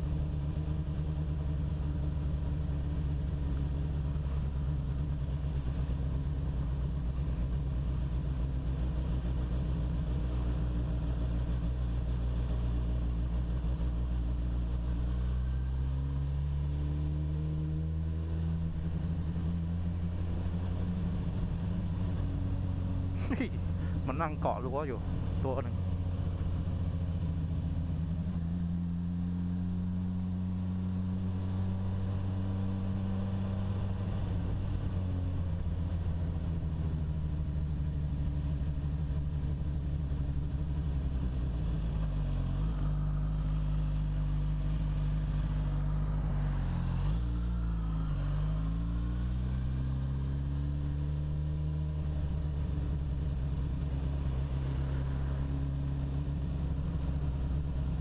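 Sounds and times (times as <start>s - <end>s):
motorcycle engine revving: 9.5s - 58.0s.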